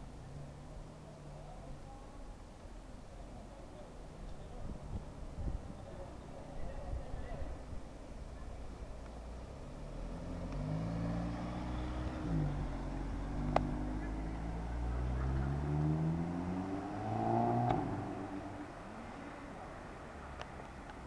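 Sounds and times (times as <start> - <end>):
car engine accelerating: 9.3 - 20.4.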